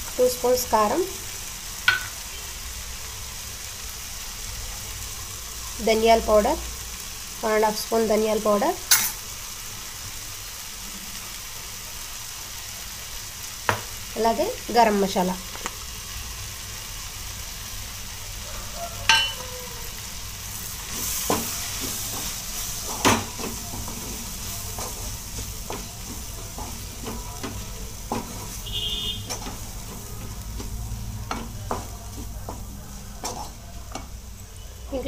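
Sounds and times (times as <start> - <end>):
food sizzling in oil: 0.0 - 35.0
wooden spatula scraping and knocking pan: 20.9 - 34.1.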